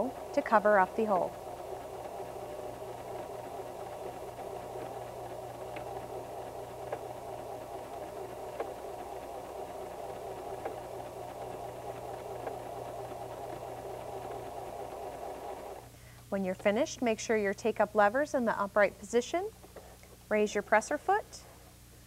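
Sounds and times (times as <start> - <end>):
electric sewing machine running: 0.0 - 15.9.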